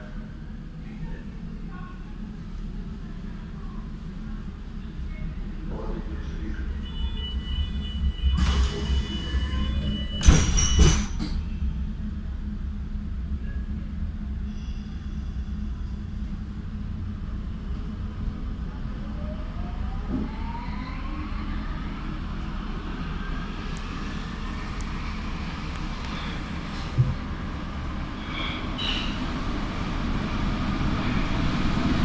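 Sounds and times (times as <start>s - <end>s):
train running gear rumble: 8.0s - 19.1s, 21.5s - 32.0s.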